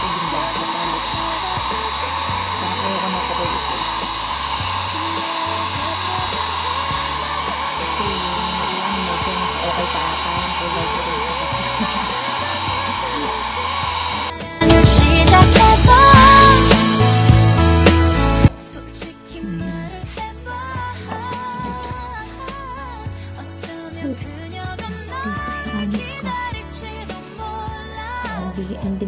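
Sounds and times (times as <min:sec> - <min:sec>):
hair dryer blowing: 0:00.0 - 0:18.5, 0:20.9 - 0:22.8
background music: 0:00.0 - 0:29.0.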